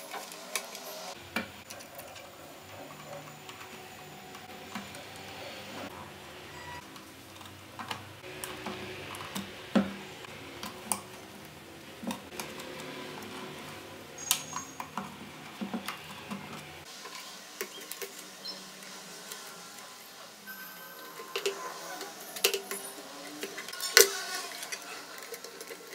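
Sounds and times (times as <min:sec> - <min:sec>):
plastic parts clicking and clattering: 0:06.8 - 0:19.5, 0:21.1 - 0:25.9.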